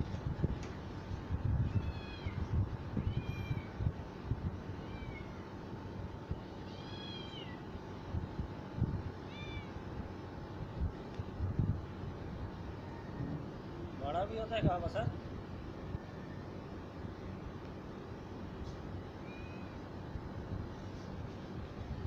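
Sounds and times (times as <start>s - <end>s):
cat meowing: 3.0s - 3.7s, 4.8s - 5.4s, 6.6s - 7.6s, 9.3s - 9.8s, 19.2s - 19.8s.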